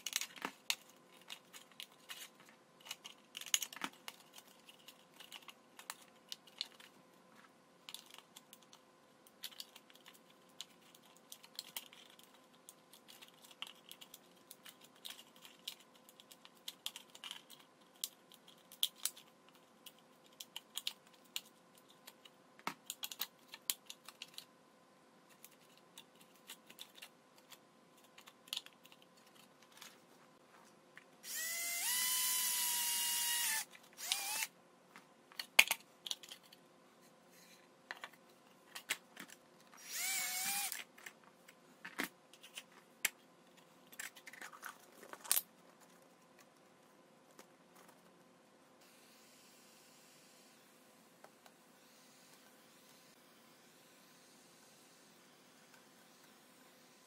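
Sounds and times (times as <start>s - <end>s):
cordless drill whining: 31.2s - 34.5s, 39.8s - 40.8s.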